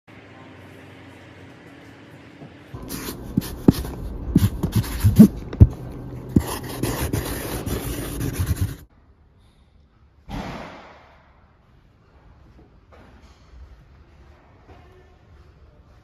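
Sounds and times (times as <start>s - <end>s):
marker scratching on cardboard: 2.8s - 5.8s, 6.4s - 8.8s.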